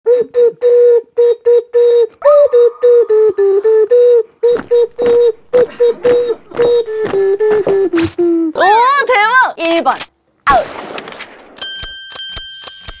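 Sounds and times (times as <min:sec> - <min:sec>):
sharp percussive clicks: 0:10.9 - 0:13.0.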